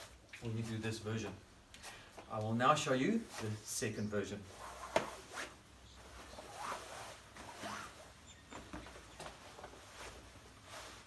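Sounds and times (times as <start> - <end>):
fabric rustling and swishing: 3.2 - 11.0.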